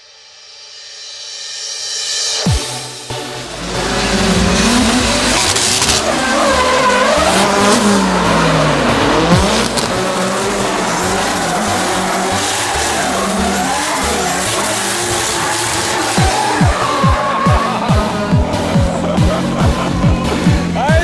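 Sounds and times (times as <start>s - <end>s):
car engines at high revs: 3.3s - 20.9s
tyres squealing: 3.6s - 21.0s.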